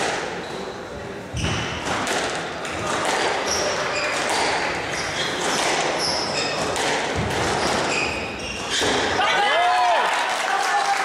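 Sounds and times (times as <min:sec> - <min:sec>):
murmur of spectators: 0:00.0 - 0:11.0
squash ball smacking: 0:01.4 - 0:09.2
shoes squeaking on wooden floor: 0:03.4 - 0:09.2.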